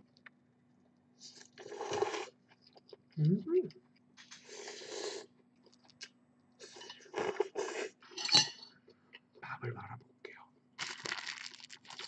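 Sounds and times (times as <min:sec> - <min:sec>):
metal spoon clinking on bowl: 0:08.2 - 0:08.7.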